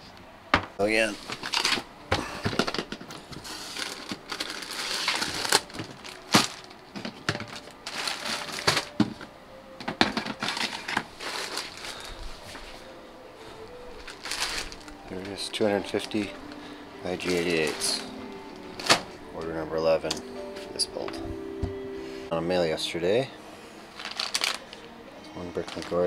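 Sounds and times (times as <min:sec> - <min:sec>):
plastic bags crinkling: 0:01.0 - 0:09.3, 0:10.0 - 0:19.6, 0:23.9 - 0:26.0
plastic bins knocking: 0:05.2 - 0:11.1.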